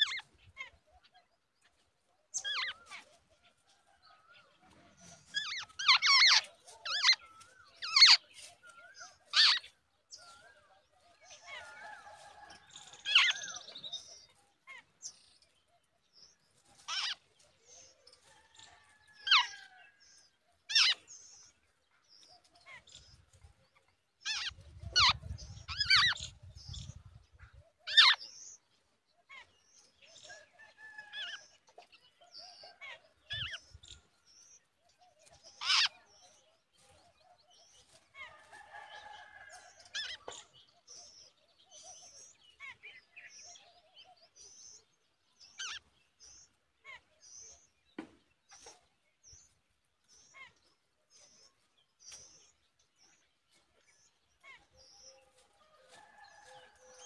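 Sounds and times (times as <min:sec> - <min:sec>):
birds giving harsh calls: 0:05.0 - 0:09.7, 0:16.8 - 0:17.8, 0:20.7 - 0:21.4, 0:24.2 - 0:26.9, 0:27.9 - 0:28.5, 0:35.4 - 0:36.3, 0:45.5 - 0:47.5.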